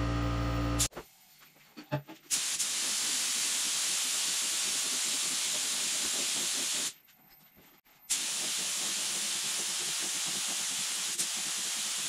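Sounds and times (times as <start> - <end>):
paint spray gun hissing: 2.3 - 6.9, 8.1 - 12.0.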